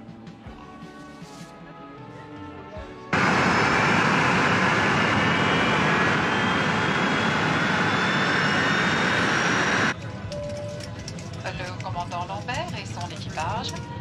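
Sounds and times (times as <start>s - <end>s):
jet engines running: 3.1s - 10.2s.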